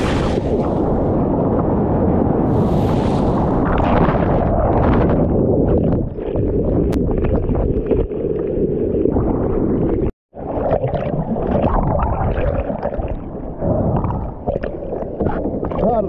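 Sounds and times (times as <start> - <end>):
surf rushing and splashing: 0.0 - 1.6, 2.3 - 5.9.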